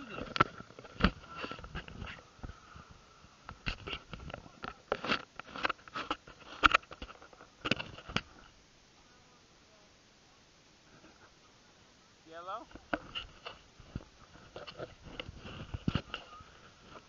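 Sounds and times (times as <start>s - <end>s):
faint background hiss: 0.0s - 17.0s.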